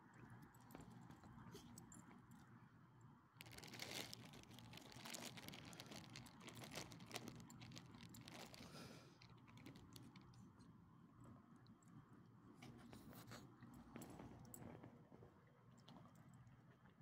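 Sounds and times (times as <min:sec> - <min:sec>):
dogs crunching gravel: 0:03.4 - 0:10.2.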